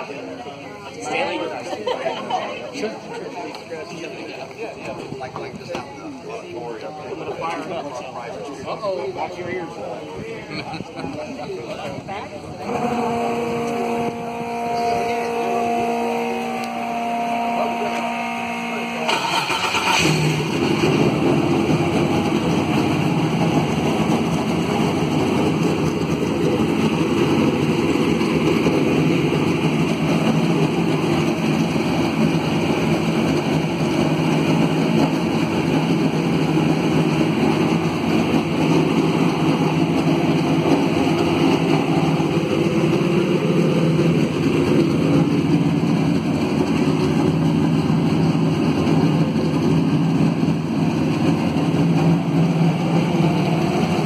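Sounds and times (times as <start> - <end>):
race car engine running loudly: 11.8 - 54.0.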